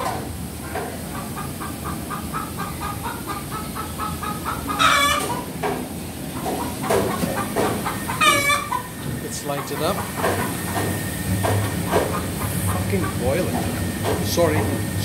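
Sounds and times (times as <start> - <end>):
chickens clucking: 0.0 - 15.0
loud chicken call: 1.2 - 5.5, 6.5 - 9.0.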